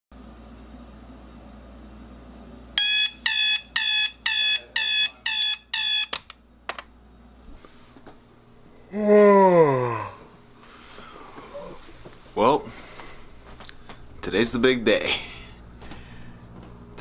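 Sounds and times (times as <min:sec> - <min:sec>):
alarm clock beeping: 0:02.8 - 0:06.2.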